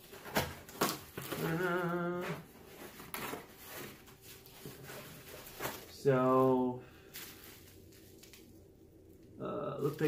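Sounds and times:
cardboard rustling: 0.0 - 8.5
man humming: 1.4 - 2.4, 9.4 - 9.9.

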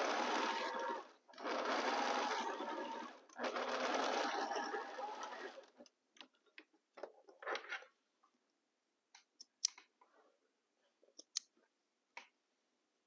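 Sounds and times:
sewing machine stitching: 0.0 - 5.8
small clicks: 9.1 - 10.0.

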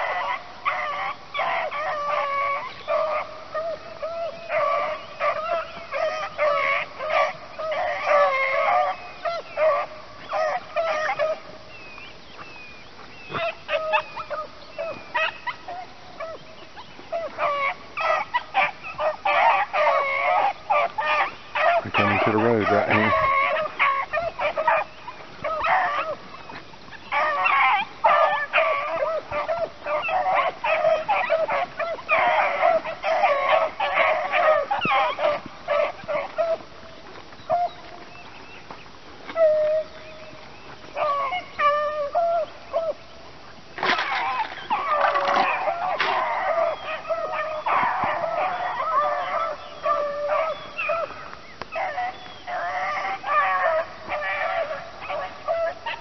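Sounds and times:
hounds baying: 0.0 - 56.0.

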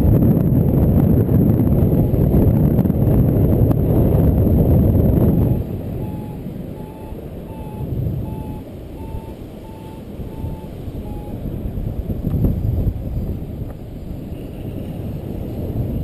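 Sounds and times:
wind rumbling on microphone: 0.0 - 16.0
variometer beeping: 5.2 - 11.6.

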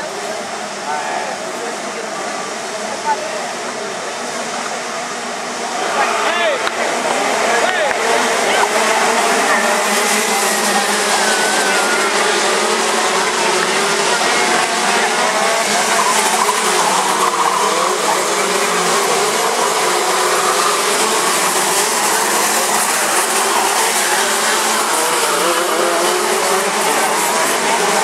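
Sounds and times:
karts racing past: 0.0 - 28.0.

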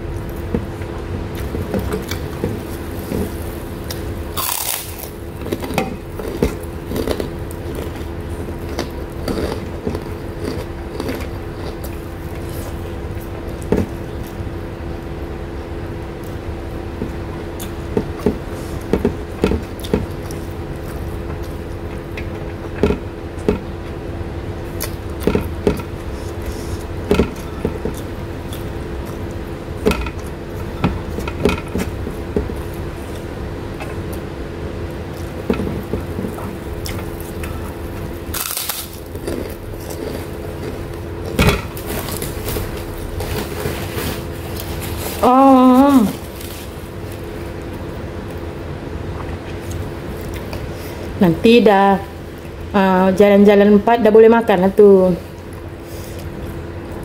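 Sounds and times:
steady low hum: 0.0 - 57.0
person chewing and lip smacking: 24.7 - 34.3, 35.1 - 43.3, 49.1 - 50.7.

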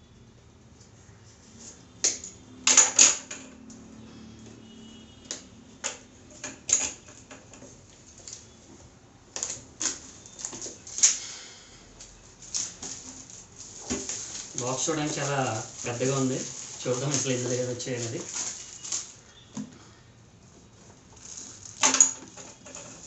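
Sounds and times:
cardboard and paper crinkling: 12.4 - 19.4, 21.1 - 23.0.

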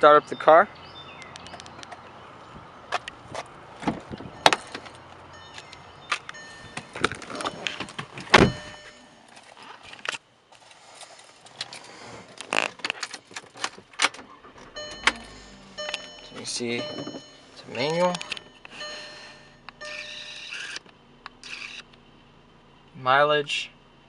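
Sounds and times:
car door clicks and thumps: 2.9 - 9.0, 12.7 - 19.0
short beeping tones: 4.3 - 9.2, 14.8 - 20.5.

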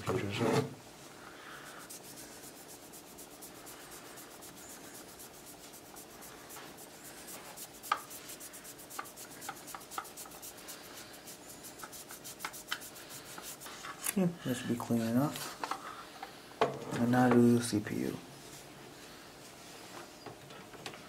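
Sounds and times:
cloth scrubbing heatsink: 1.5 - 14.0.

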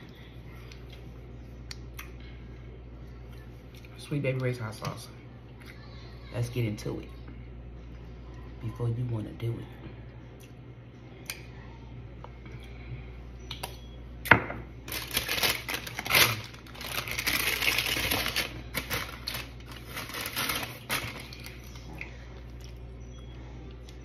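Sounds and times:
crinkling takeout packaging: 14.8 - 21.9.

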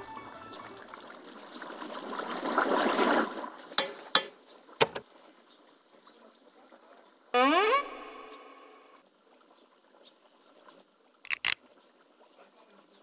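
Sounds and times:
potatoes deep-frying in oil: 0.0 - 7.3.

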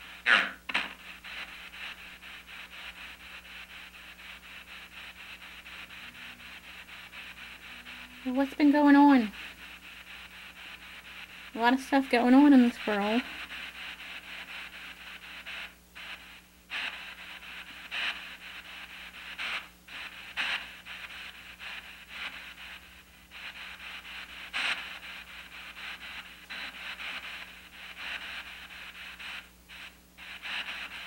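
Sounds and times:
chopped radio static: 0.0 - 31.0
noise bursts: 0.0 - 31.0.

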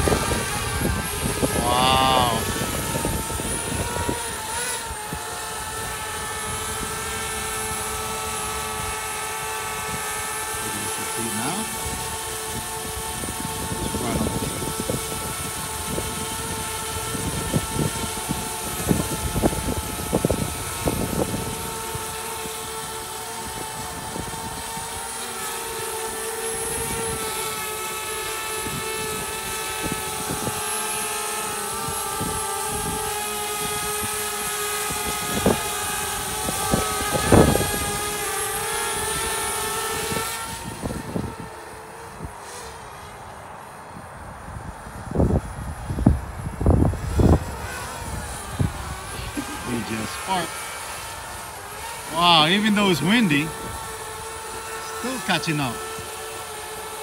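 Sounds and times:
wind buffeting microphone: 0.0 - 25.0, 26.5 - 42.4, 44.0 - 52.1, 53.4 - 54.8
drone propellers whining: 0.0 - 57.0.

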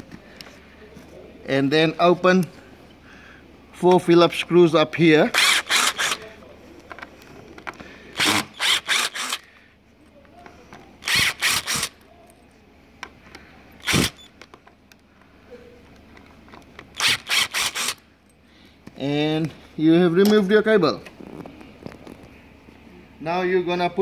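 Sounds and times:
screws grating out of metal: 5.3 - 6.3, 8.2 - 9.5, 11.0 - 12.0, 13.8 - 14.3, 17.0 - 18.0.

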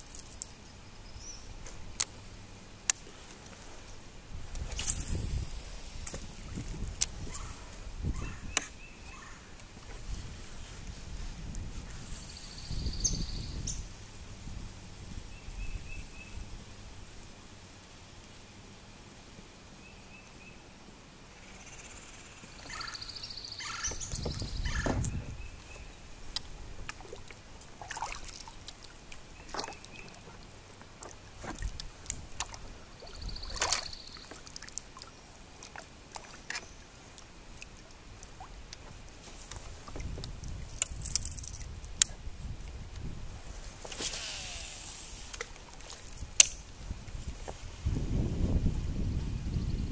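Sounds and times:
paddle splashing in water: 22.6 - 41.8, 43.5 - 47.7.

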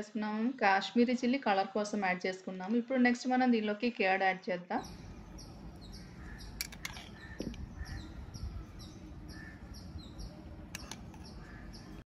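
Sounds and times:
low background rumble: 4.8 - 12.0
small bird chirping: 4.8 - 12.0.

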